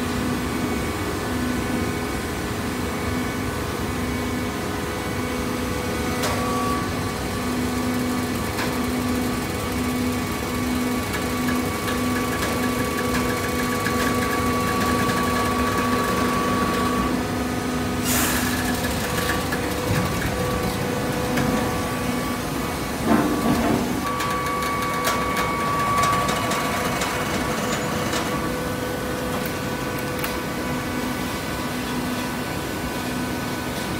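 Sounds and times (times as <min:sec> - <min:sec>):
hydraulic machine humming: 0:06.0 - 0:31.8.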